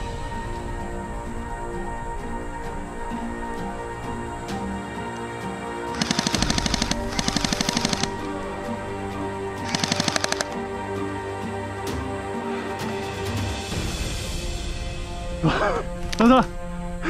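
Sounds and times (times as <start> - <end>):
background music: 0.0 - 17.0
airsoft guns firing bursts: 6.0 - 8.2, 9.6 - 10.5.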